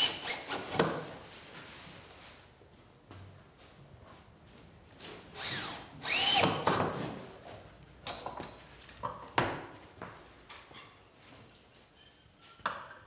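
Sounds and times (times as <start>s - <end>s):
cordless drill driving screws: 5.4s - 6.7s.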